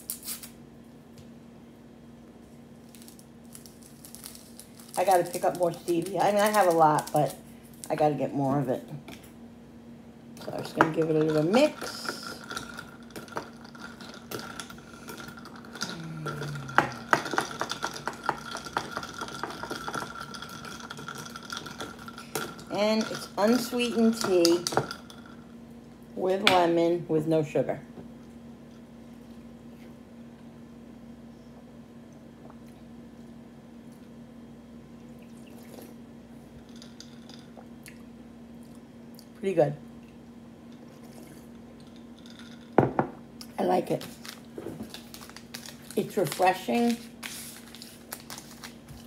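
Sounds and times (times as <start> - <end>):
faint steady hum: 0.0 - 49.0
spoon clinking ice in a glass: 10.8 - 25.4.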